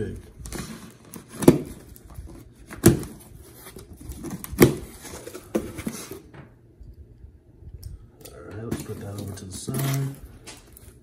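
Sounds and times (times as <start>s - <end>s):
cardboard rustling and scraping: 0.0s - 6.4s, 8.6s - 11.0s.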